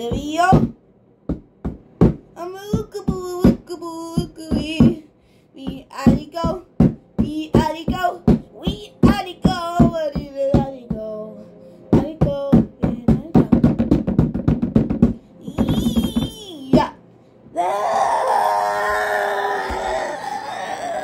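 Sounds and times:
child singing: 7.2s - 11.3s.

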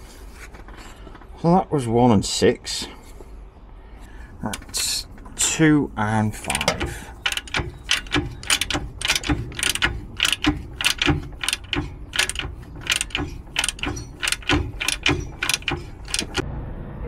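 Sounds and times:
ratchet clicking: 6.5s - 16.4s.

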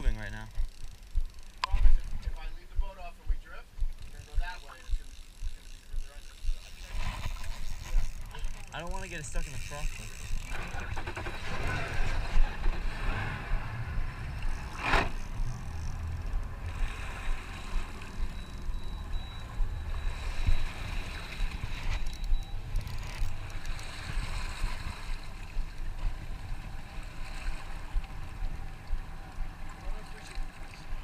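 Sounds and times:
steady low rumble: 0.0s - 31.0s
water sloshing around boat: 0.5s - 31.0s
brief swish: 14.7s - 15.2s.

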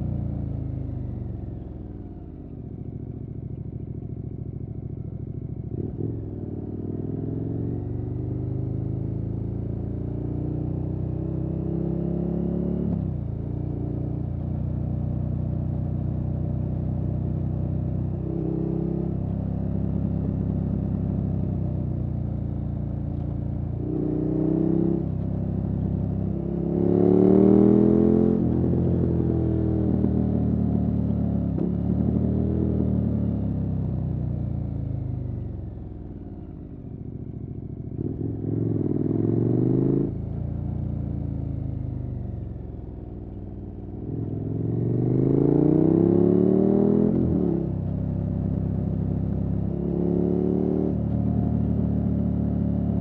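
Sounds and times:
motorcycle engine revving: 25.8s - 30.6s, 37.9s - 42.5s, 43.9s - 53.0s.

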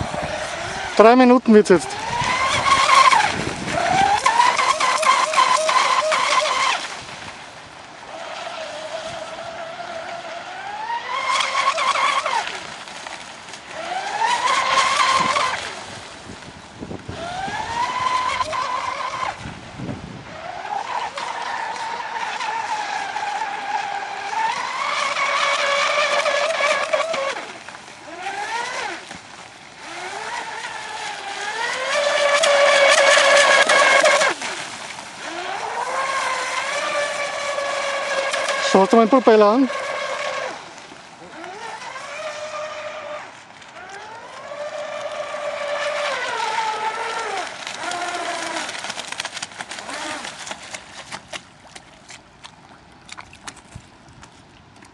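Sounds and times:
model boat motor whining: 0.0s - 51.6s.

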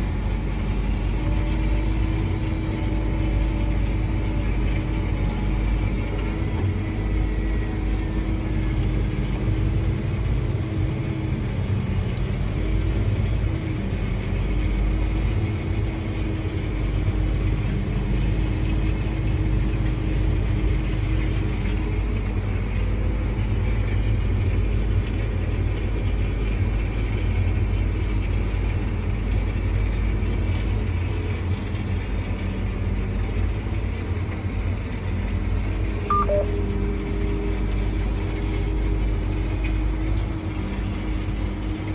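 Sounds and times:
tractor engine drone: 0.0s - 41.9s
faint high chirp: 36.1s - 36.6s.

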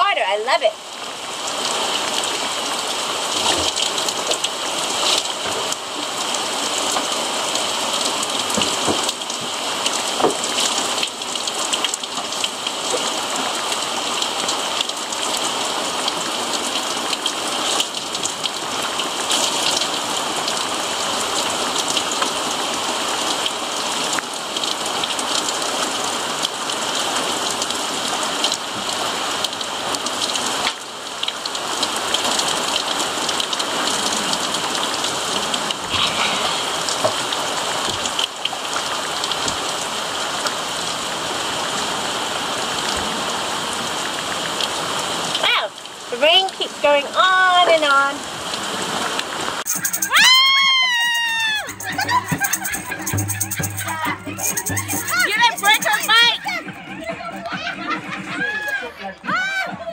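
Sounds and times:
rain falling steadily: 0.0s - 51.5s
raindrops tapping near microphone: 1.4s - 22.5s.

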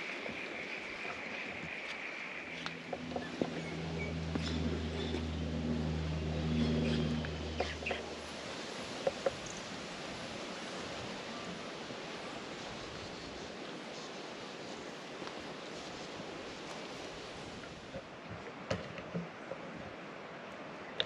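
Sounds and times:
outdoor bush hiss: 0.0s - 17.9s
low steady hum: 2.4s - 9.0s.

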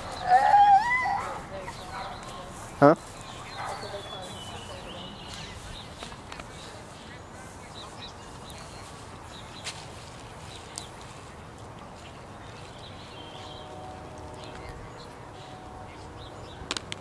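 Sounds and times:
faint high animal calls: 0.0s - 1.4s.

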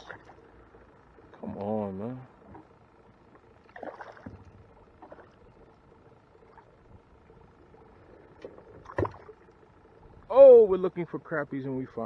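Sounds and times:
water lapping against a kayak: 2.3s - 10.3s.

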